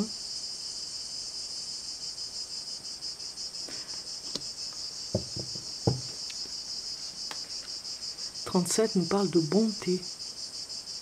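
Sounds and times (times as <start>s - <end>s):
crickets chirping: 0.0s - 11.0s
soft knocks: 5.1s - 6.2s.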